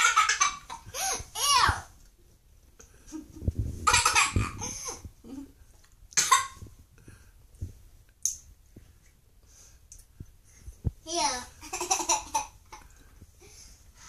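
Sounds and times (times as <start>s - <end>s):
girl laughing and sputtering: 3.0s - 5.4s.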